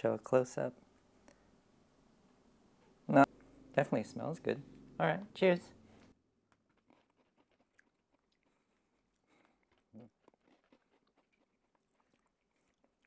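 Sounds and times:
crunchy biscuit chewing: 6.4s - 13.0s.

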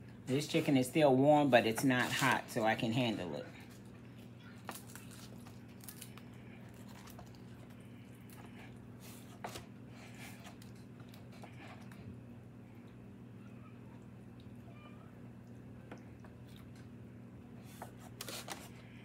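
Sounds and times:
low steady hum: 0.0s - 19.0s
tearing roasted chicken meat: 4.5s - 8.5s.

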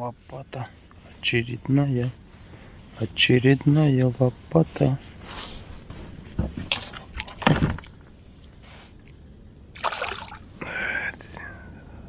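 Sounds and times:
handling knocks and rustles: 5.3s - 8.1s
splash on water: 9.8s - 10.4s.

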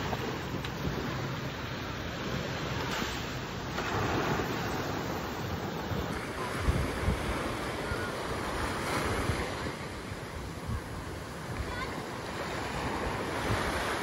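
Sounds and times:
small waves breaking on sand: 0.0s - 14.0s
wind on microphone: 3.8s - 14.0s.

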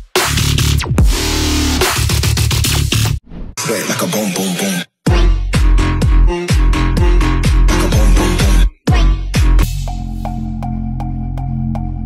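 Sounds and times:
electronic music with heavy bass: 0.0s - 12.0s.

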